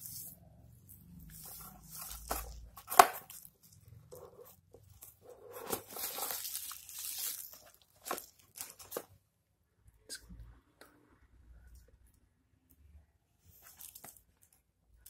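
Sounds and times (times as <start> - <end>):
cardboard and bubble wrap rustling: 1.3 - 9.2, 13.6 - 14.2
cardboard sleeve sliding: 4.2 - 6.6.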